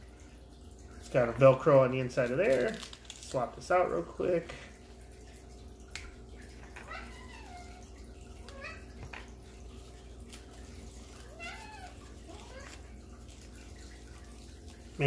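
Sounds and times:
cat meowing: 11.3s - 12.6s.

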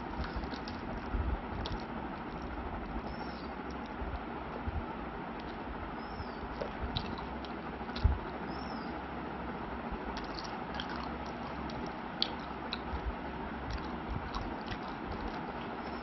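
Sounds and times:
chewing with mouth closed: 0.0s - 4.1s, 5.4s - 5.7s, 6.4s - 8.5s, 10.1s - 16.0s
fingers picking at food: 3.6s - 4.0s, 10.2s - 16.0s.

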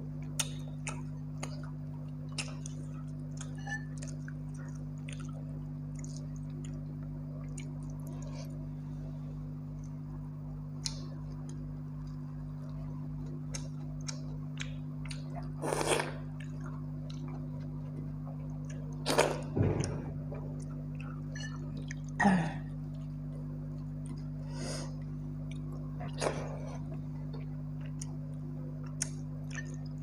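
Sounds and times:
low hum: 0.0s - 30.0s
wet smacks of chewing: 0.2s - 8.3s.

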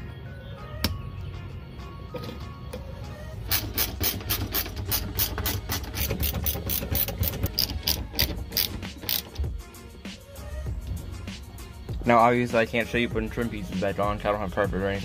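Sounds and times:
handbrake ratchet clicking: 3.5s - 9.5s.

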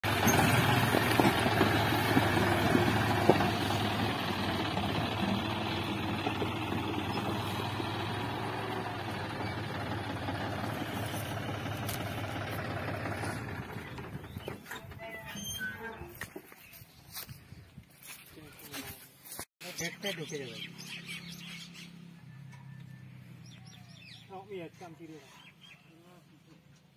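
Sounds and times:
tractor diesel engine running: 0.0s - 16.3s.

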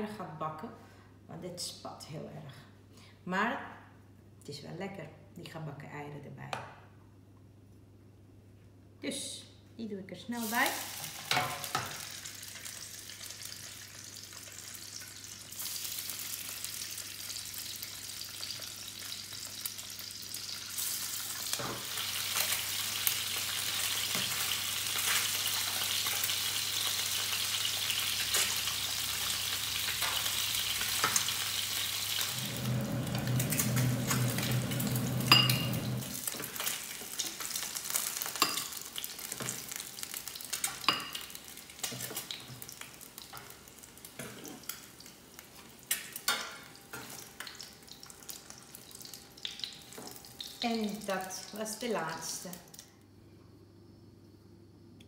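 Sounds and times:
eggs sizzling in hot oil: 10.4s - 52.8s.

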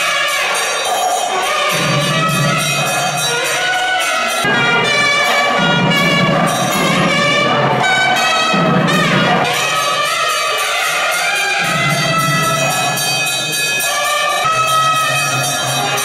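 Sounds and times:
nadaswaram melody: 0.0s - 16.0s.

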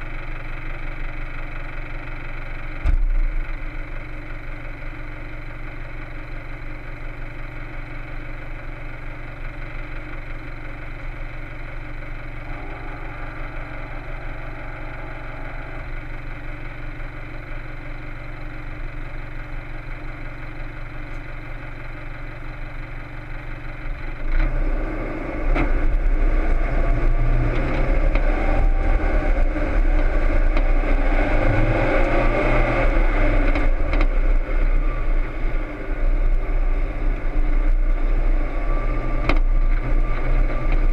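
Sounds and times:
diesel engine idling: 0.0s - 40.9s
engine pulling under load: 9.5s - 40.9s.

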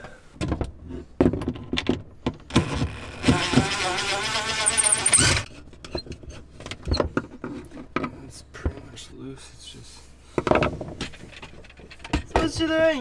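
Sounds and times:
cordless drill whining: 2.7s - 5.5s.

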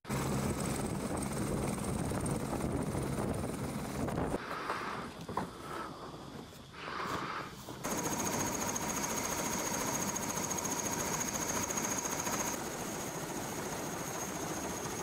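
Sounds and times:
helicopter rotor beat: 0.1s - 4.4s, 7.8s - 15.0s
helicopter turbine whine: 0.1s - 5.0s, 6.8s - 15.0s.

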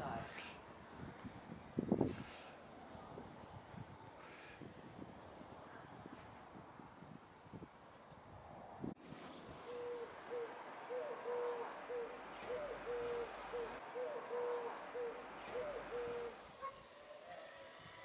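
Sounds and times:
pigeon cooing: 9.6s - 17.7s.

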